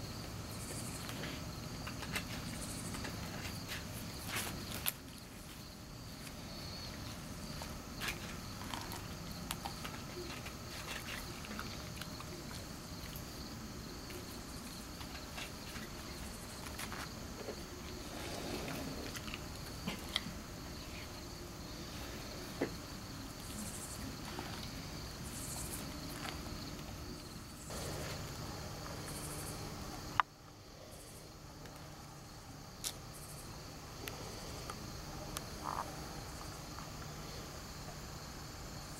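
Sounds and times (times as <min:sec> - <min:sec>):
crickets chirring: 0:00.0 - 0:38.9
dog chewing: 0:07.5 - 0:13.3.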